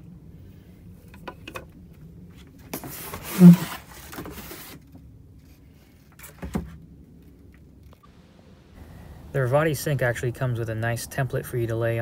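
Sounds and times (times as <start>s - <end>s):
cardboard scraping and rustling: 2.4s - 6.8s.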